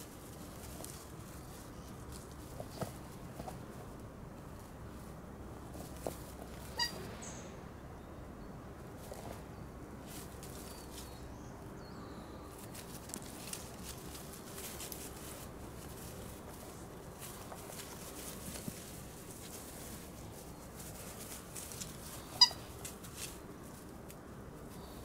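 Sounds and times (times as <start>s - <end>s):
puppy rustling in dry grass: 0.0s - 7.4s, 8.8s - 25.0s
high-pitched squeak: 6.7s - 7.1s, 22.4s - 22.6s.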